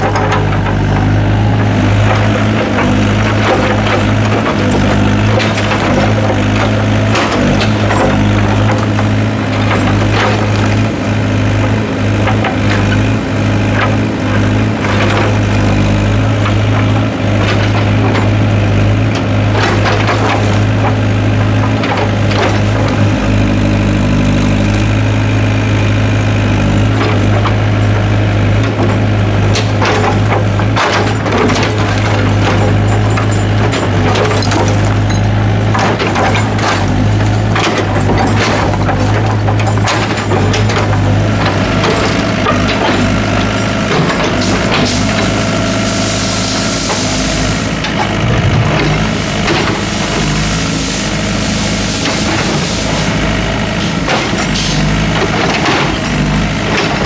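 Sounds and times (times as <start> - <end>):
excavator diesel engine droning: 0.0 - 57.0.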